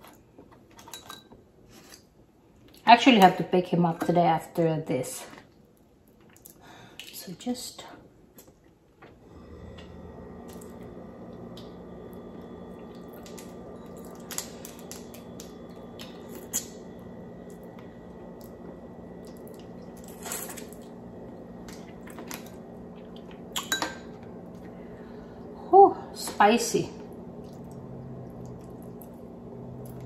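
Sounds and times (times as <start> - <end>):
steady low hum: 9.0 - 30.0.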